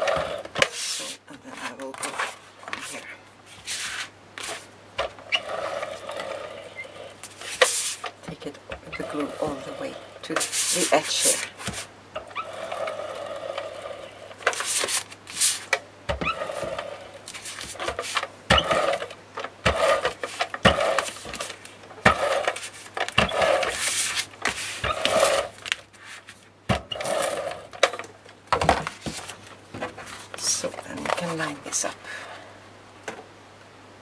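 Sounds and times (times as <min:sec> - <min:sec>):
tape runner rolling on cardstock: 0:00.0 - 0:01.2, 0:03.6 - 0:31.4.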